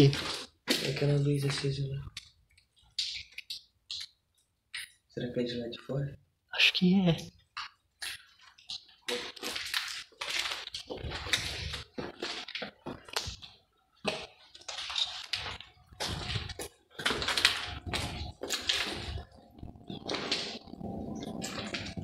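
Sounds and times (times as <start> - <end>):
footsteps crunching on rubble: 7.6 - 22.0.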